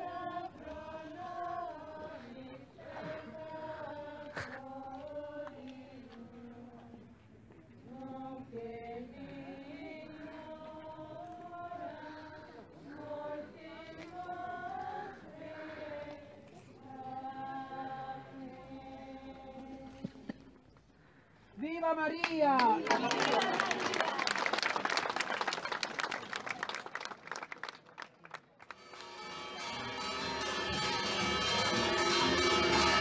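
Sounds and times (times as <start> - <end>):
women singing a slow hymn: 0.0 - 20.6.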